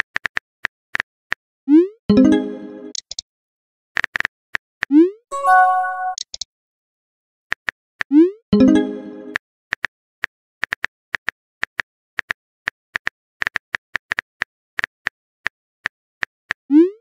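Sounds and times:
chiming message tone: 0:02.1 - 0:02.9, 0:05.3 - 0:06.2, 0:08.6 - 0:09.4.

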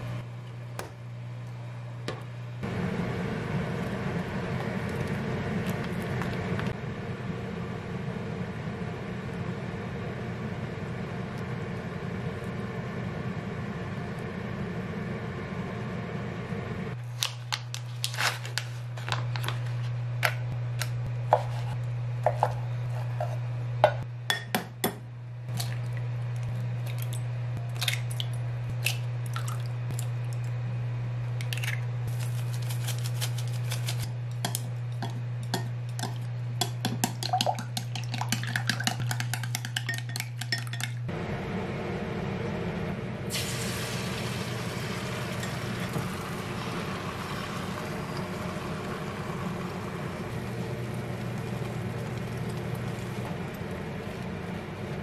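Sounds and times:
steady low hum: 0:00.0 - 0:55.0
egg sizzling in frying pan: 0:43.3 - 0:55.0.

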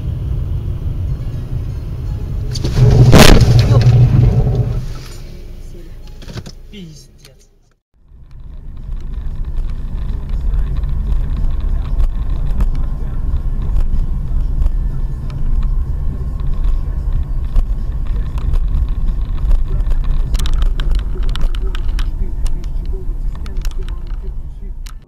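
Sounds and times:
car interior road rumble: 0:00.0 - 0:25.0
clicking and rattling: 0:15.2 - 0:25.0.

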